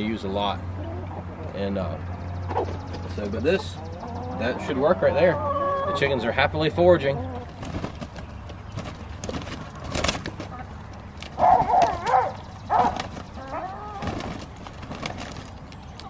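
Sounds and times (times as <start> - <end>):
hens squawking: 0.0 - 16.0
hens wing flapping and scuffling: 7.1 - 16.0.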